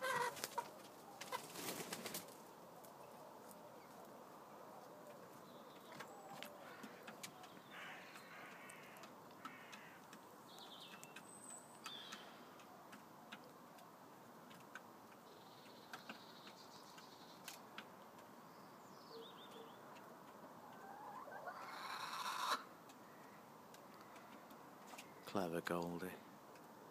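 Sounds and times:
chickens chirping: 0:00.0 - 0:18.3, 0:19.2 - 0:25.0.

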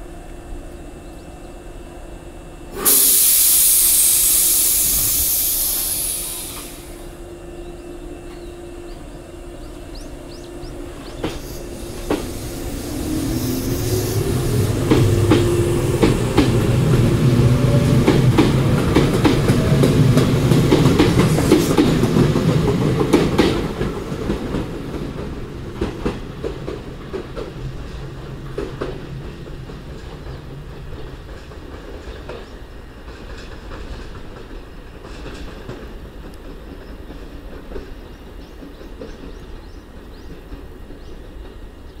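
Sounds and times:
electric train motor hum: 0:00.0 - 0:31.2
train wheels clacking over rail joints: 0:13.9 - 0:41.8.

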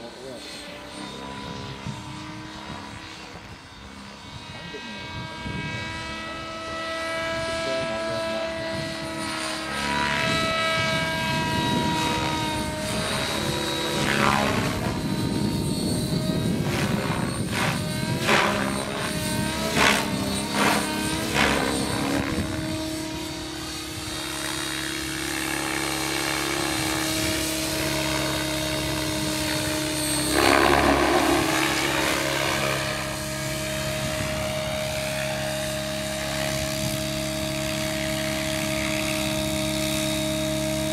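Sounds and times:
rc helicopter motor whine: 0:00.0 - 0:40.9
rotor noise surges: 0:27.9 - 0:33.4.

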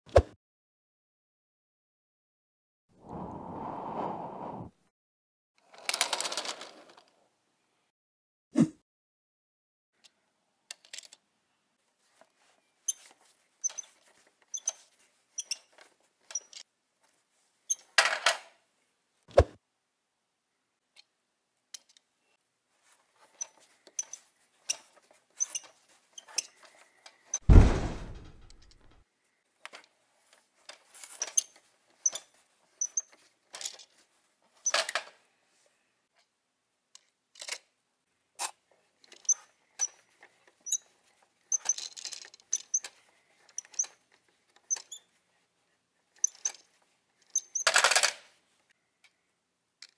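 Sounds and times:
heavy thump: 0:27.5 - 0:29.0
plastic toys clicking: 0:41.5 - 0:44.0, 0:46.2 - 0:46.6.

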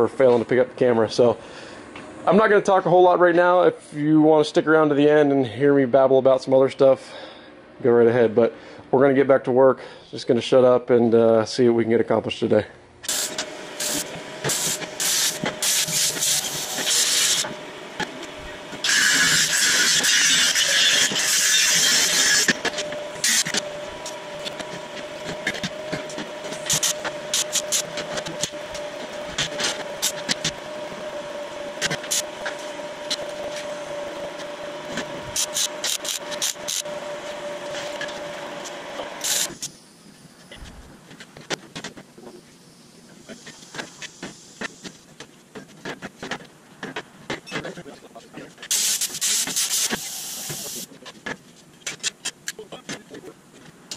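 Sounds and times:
steady hum: 0:12.8 - 0:53.9
angle grinder cutting steel: 0:13.1 - 0:39.7.

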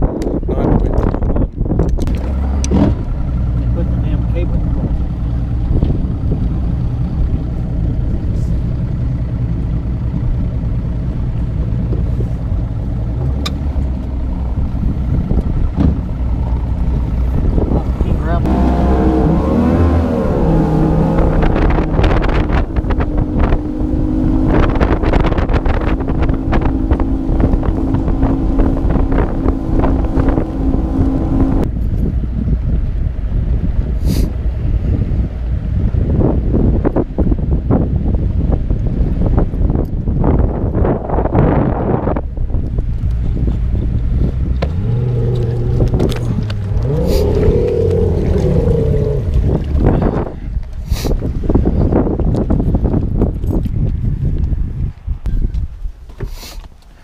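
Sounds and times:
wind buffeting microphone: 0:00.0 - 0:57.0
outboard motor running: 0:02.0 - 0:31.7, 0:42.9 - 0:50.8
hull thumping on choppy water: 0:15.8 - 0:16.2.

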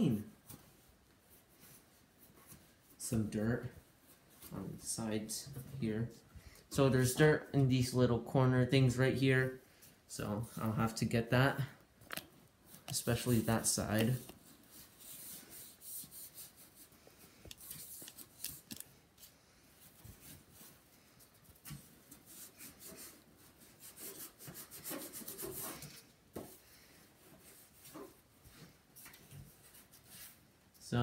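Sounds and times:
sponge rubbing on plastic: 0:12.7 - 0:31.0.

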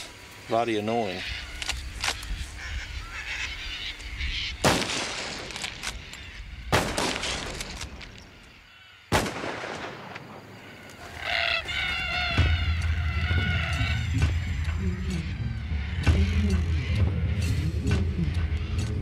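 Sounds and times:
cockatoos screeching: 0:00.7 - 0:04.7, 0:10.5 - 0:17.6
rifle shots with echo: 0:04.6 - 0:06.0, 0:06.7 - 0:07.9, 0:09.1 - 0:10.5.

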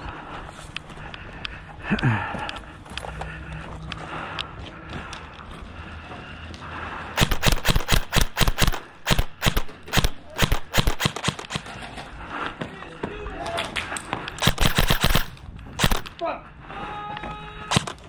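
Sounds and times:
airsoft guns firing: 0:07.2 - 0:11.7, 0:14.4 - 0:16.2, 0:17.7 - 0:18.0.

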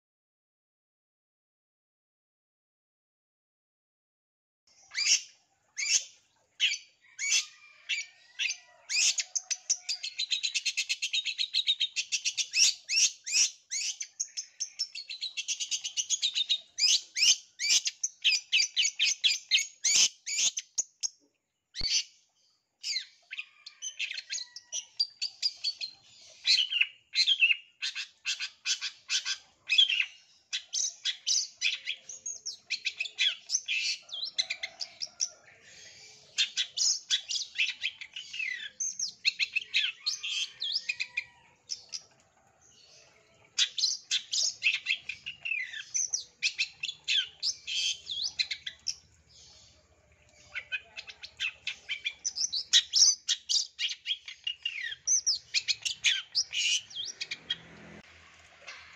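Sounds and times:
bird chattering and trilling: 0:04.8 - 0:21.0, 0:22.8 - 0:42.1, 0:42.9 - 0:49.6, 0:50.4 - 0:57.6.

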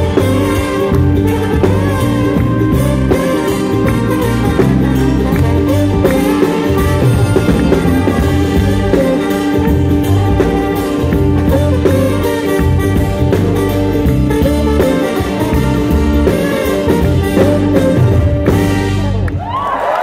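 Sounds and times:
trombone melody: 0:00.0 - 0:19.2
live band playing: 0:00.0 - 0:20.0
audience cheering: 0:19.0 - 0:20.0.

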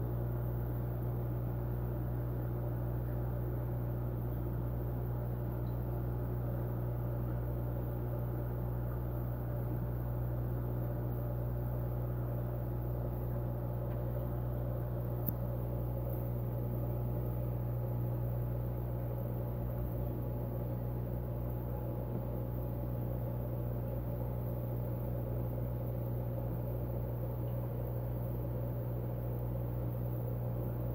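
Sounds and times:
air pump and filter humming: 0:00.0 - 0:30.9
small tick: 0:05.6 - 0:05.9, 0:15.2 - 0:15.5.

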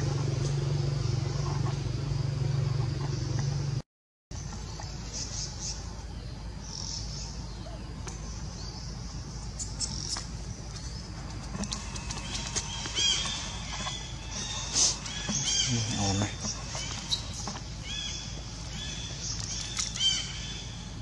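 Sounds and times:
outdoor background rumble: 0:00.0 - 0:21.0
high chirping calls: 0:04.4 - 0:21.0.

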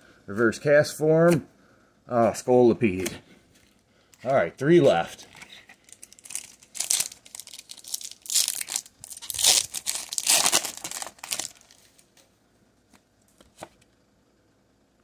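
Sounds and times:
foil wrapper tearing and crinkling: 0:05.8 - 0:12.0.

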